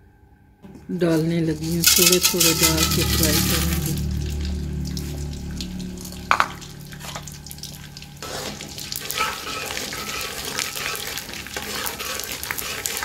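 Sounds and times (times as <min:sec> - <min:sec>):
metal spoon scraping pan: 0:01.0 - 0:04.1, 0:08.2 - 0:13.0
gum frying in hot oil: 0:01.0 - 0:13.0.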